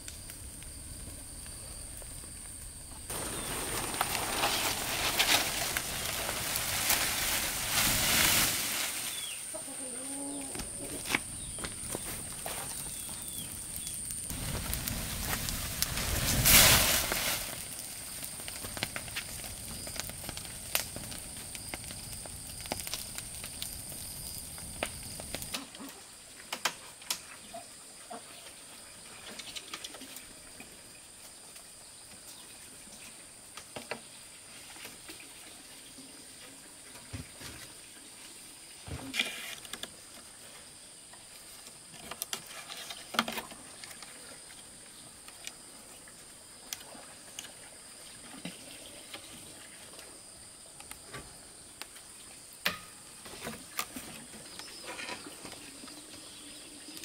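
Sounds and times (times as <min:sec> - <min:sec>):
dry leaves crackling in fire: 0:00.0 - 0:09.6, 0:10.3 - 0:25.9.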